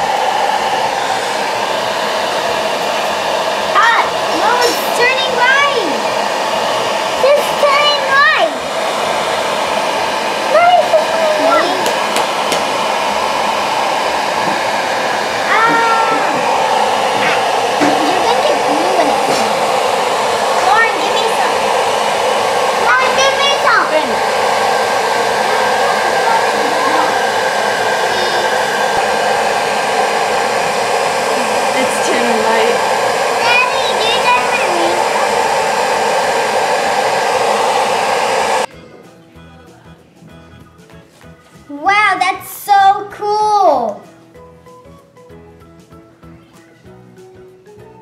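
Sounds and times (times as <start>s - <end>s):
hair dryer blowing: 0.0s - 38.7s.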